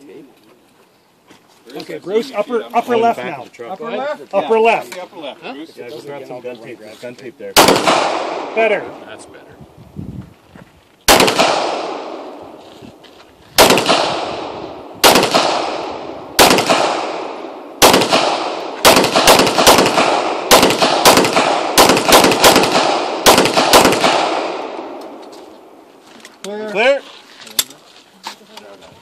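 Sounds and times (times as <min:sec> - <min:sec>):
pistol shots: 0:07.6 - 0:08.9, 0:11.1 - 0:12.4, 0:13.6 - 0:25.2.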